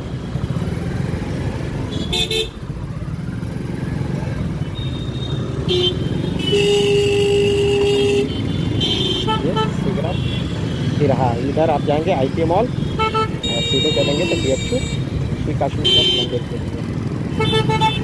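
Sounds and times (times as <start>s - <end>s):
engine and road rumble: 0.0s - 18.0s
vehicle horns tooting: 1.9s - 2.6s, 4.8s - 16.6s, 17.2s - 18.0s.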